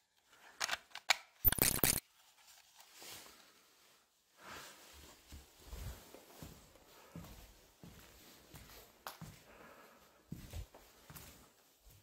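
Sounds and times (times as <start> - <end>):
faint shuffling: 2.2 - 12.0
soft footsteps: 4.8 - 12.0.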